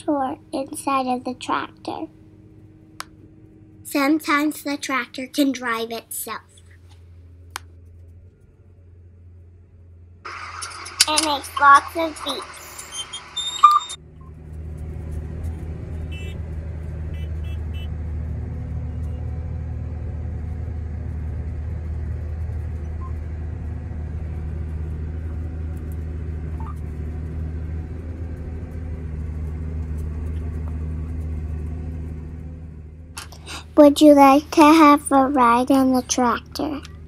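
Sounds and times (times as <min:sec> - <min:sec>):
tractor engine droning: 0:00.0 - 0:37.0
faint short beeps: 0:13.0 - 0:14.0.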